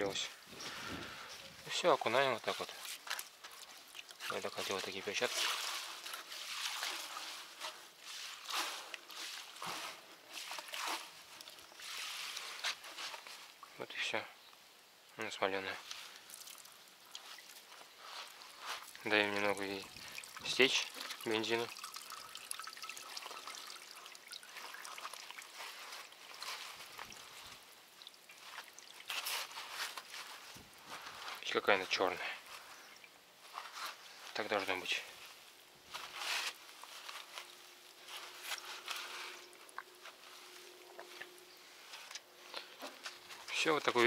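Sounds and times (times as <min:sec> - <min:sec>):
net squelching in liquid: 0:02.5 - 0:13.8, 0:15.8 - 0:31.2.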